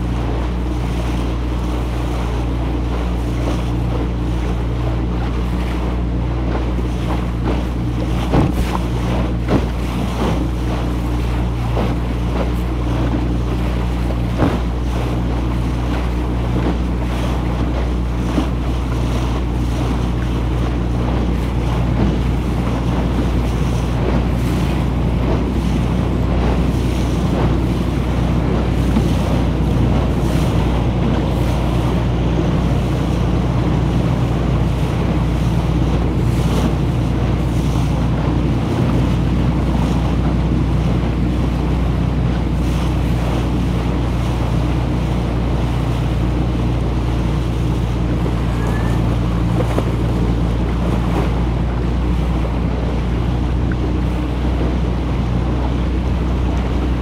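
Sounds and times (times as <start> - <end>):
motorboat engine humming: 0.0 - 57.0
wind buffeting microphone: 0.0 - 57.0.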